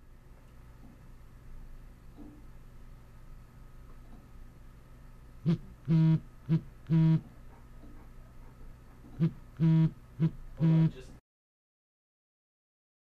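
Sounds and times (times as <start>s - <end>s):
phone vibrating on wooden desk: 5.4s - 7.3s, 9.2s - 10.9s.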